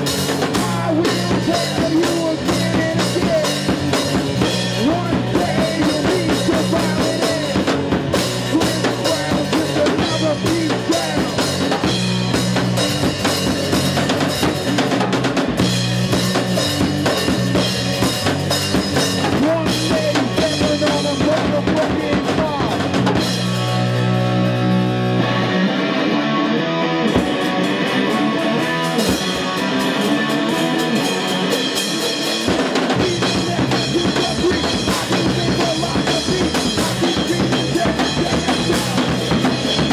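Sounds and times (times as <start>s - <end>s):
person singing: 0.0s - 11.8s, 19.3s - 23.0s, 32.8s - 39.9s
bass: 0.0s - 39.9s
drum kit: 0.0s - 39.9s
electric guitar: 0.0s - 39.9s.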